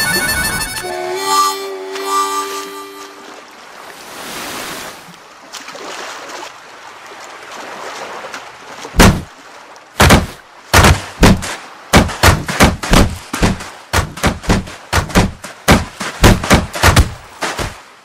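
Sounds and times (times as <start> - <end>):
sea waves: 0.0 - 18.0
wooden crate knocking on sand: 9.0 - 9.3, 10.0 - 17.8.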